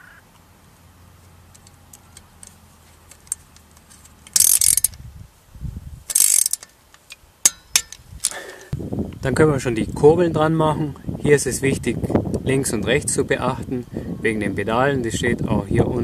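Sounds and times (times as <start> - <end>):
ratchet wrench clicking: 4.2 - 5.0, 6.1 - 8.4.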